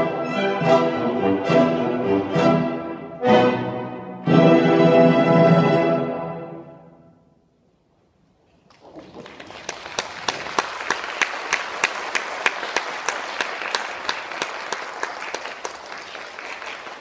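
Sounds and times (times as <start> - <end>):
audience applause: 8.7 - 17.0.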